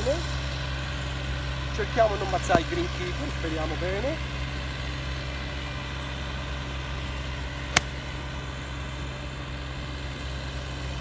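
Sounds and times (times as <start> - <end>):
golf club striking ball: 7.7 - 8.0.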